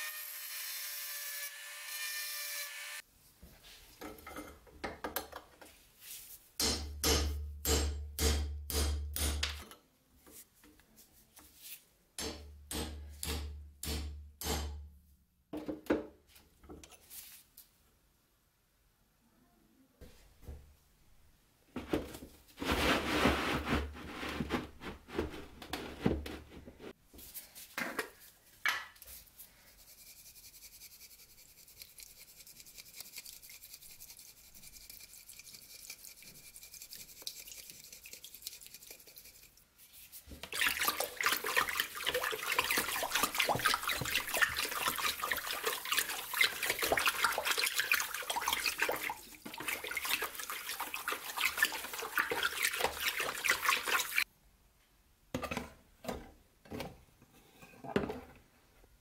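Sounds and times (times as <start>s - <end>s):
plastic tub scraping and knocking: 21.8s - 27.0s
water running into tub: 40.3s - 54.2s
water sloshing and splashing: 40.4s - 54.3s.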